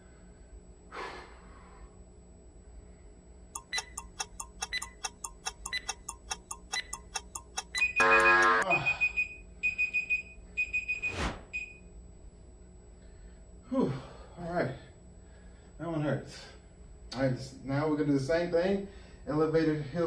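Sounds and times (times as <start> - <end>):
short high beeps: 3.6 - 5.0, 5.6 - 9.1
fast timer ticking: 3.6 - 8.6
loud buzzer: 7.7 - 9.2.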